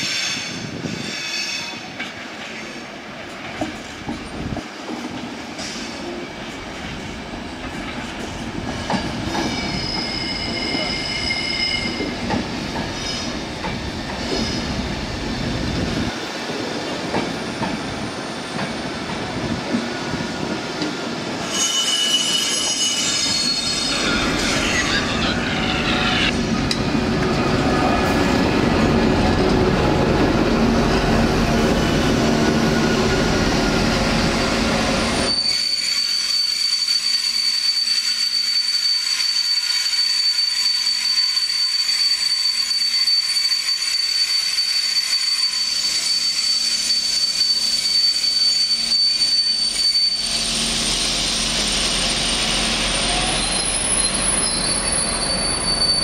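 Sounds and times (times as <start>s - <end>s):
train coaches rolling past: 0.0s - 56.0s
high-pitched wheel squeal: 9.4s - 12.3s, 21.4s - 26.5s, 32.4s - 56.0s.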